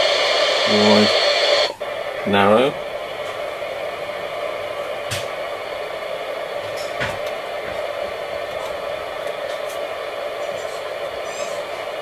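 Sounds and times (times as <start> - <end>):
radio static hiss: 0.0 - 12.0
radio control clicks: 5.0 - 11.1.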